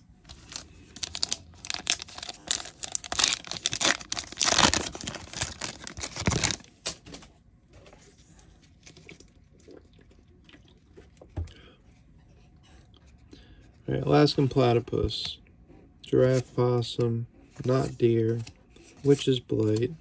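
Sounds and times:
foil pack tearing and crinkling: 0.3 - 7.0.

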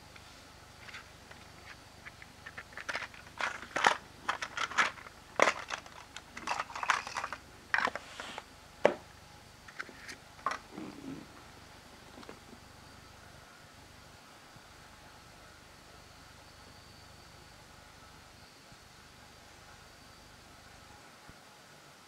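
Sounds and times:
stiff plastic packaging crinkling: 0.8 - 8.0.

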